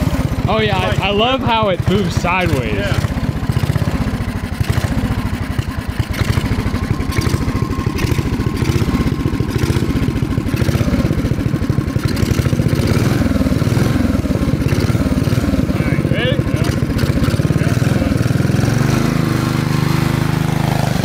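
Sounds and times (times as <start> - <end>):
engine idling: 0.0 - 21.0.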